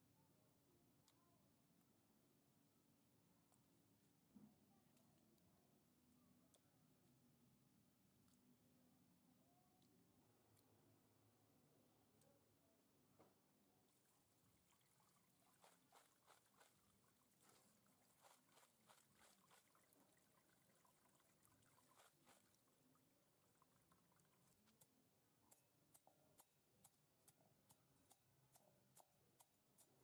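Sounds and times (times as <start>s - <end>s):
water trickling and dripping: 13.9s - 27.0s.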